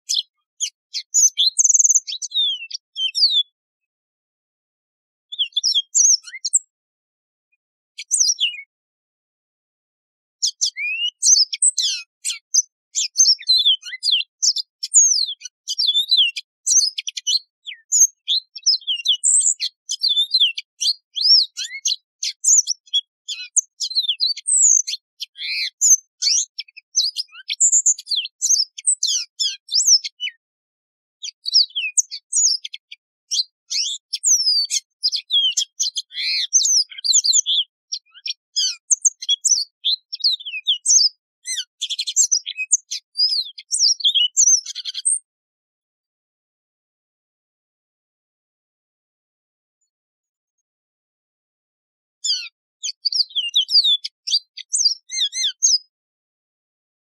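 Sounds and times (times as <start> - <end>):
canary singing: 0.0 - 3.6, 5.3 - 6.7, 8.0 - 8.7, 10.4 - 30.4, 31.2 - 45.3, 52.2 - 55.9.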